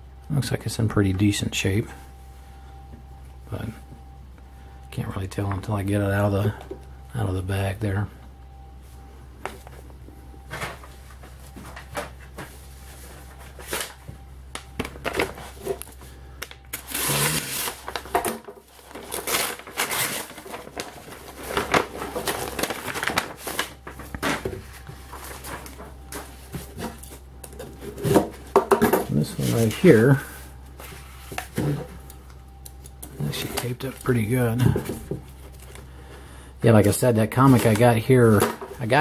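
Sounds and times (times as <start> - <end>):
cardboard and paper rustling: 9.5 - 16.1, 16.7 - 32.1, 33.0 - 35.9, 36.7 - 39.0.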